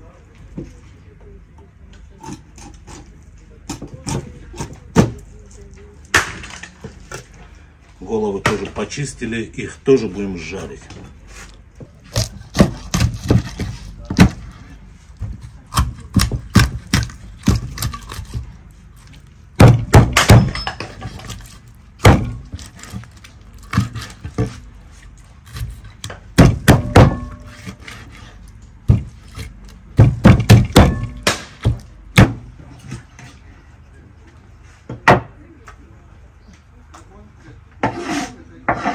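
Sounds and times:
cleaver chopping on wooden board: 12.1s - 14.5s, 15.2s - 18.4s, 19.6s - 23.0s, 23.6s - 24.6s, 25.5s - 28.2s, 28.9s - 32.4s.

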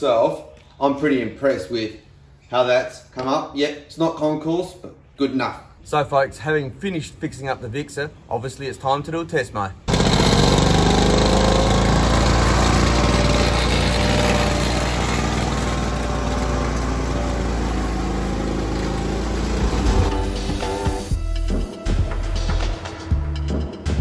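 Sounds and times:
lawnmower engine running: 9.9s - 21.1s.

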